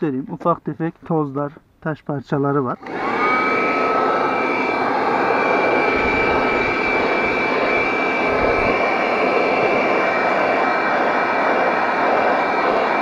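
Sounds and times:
handheld vacuum whining: 2.8 - 13.0.

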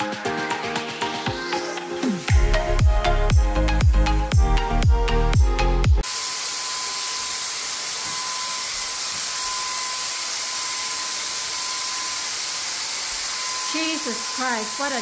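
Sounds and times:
paint sprayer hissing and whining: 6.0 - 15.0.

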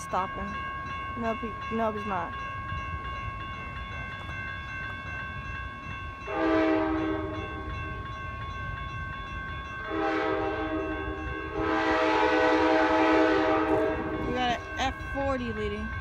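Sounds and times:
crossing warning bell ringing: 0.0 - 16.0
train horn blasts: 6.3 - 7.6, 9.9 - 14.3.

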